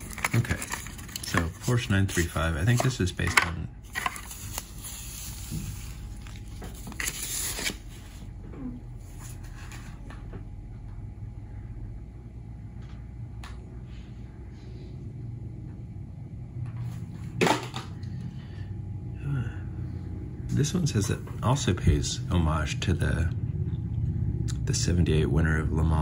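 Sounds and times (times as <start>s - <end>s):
plastic package crinkling: 0.0s - 8.0s
low room hum: 0.0s - 26.0s.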